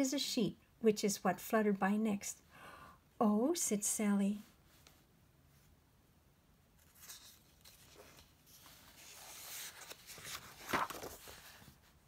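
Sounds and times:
page flapping: 6.8s - 11.8s
paper pages rustling: 6.8s - 12.0s.

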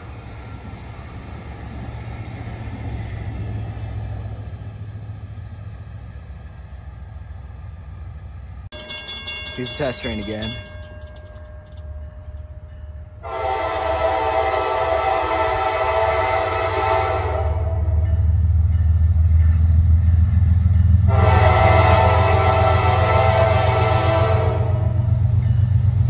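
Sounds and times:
diesel engines rumbling: 0.0s - 26.0s
locomotive air horn blasts: 13.2s - 17.9s, 21.1s - 24.8s.

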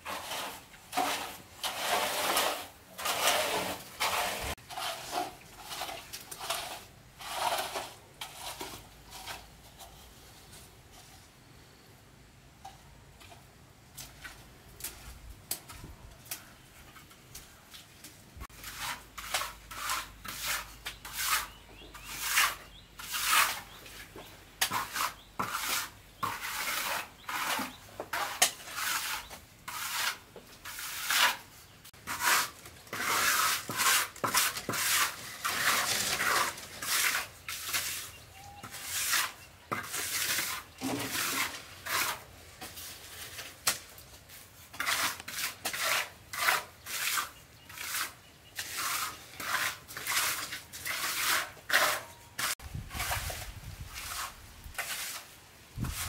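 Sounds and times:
trowel scraping wet cement: 0.0s - 10.5s, 18.4s - 56.0s.

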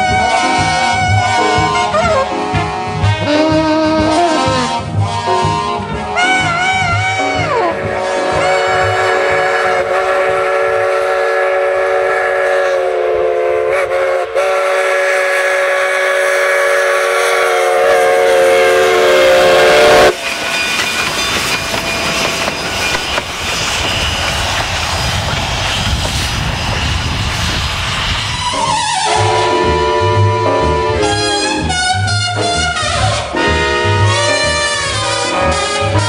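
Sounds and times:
steam chime whistle blast: 7.2s - 23.8s
locomotive clattering on track: 20.1s - 27.1s
low rumble: 21.7s - 31.1s.

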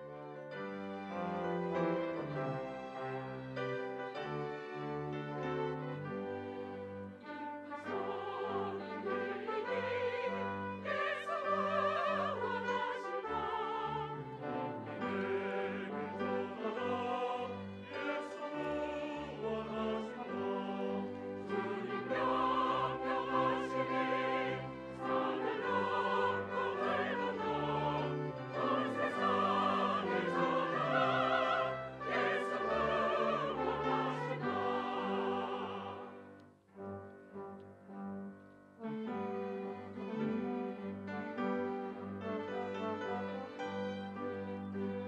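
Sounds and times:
choir singing a hymn: 0.0s - 36.4s, 39.8s - 45.0s
string orchestra accompaniment: 0.0s - 45.0s.

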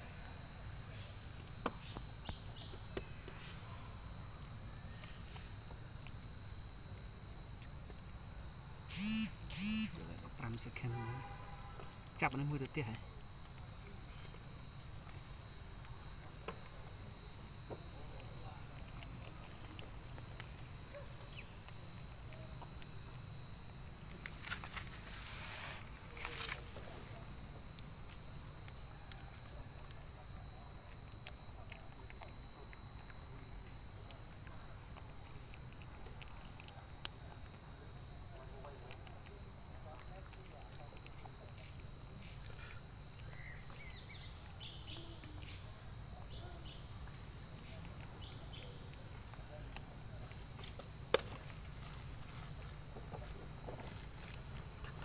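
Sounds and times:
insects droning: 0.0s - 55.0s
high chirps: 8.9s - 10.0s
rustling: 24.0s - 27.2s.

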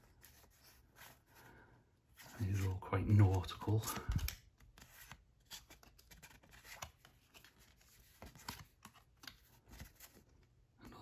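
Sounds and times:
cards rustling and clicking: 2.1s - 10.6s.

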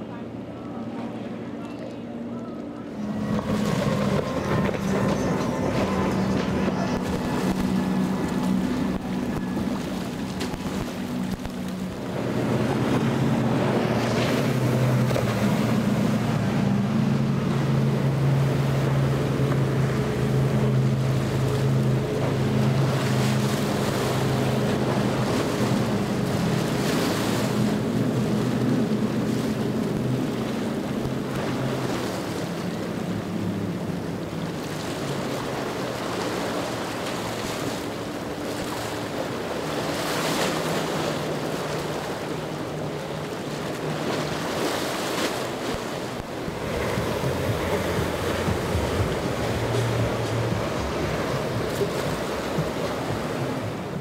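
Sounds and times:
outboard engines droning: 0.0s - 54.0s
hull splashing through waves: 2.6s - 54.0s
wind on microphone: 45.2s - 54.0s.

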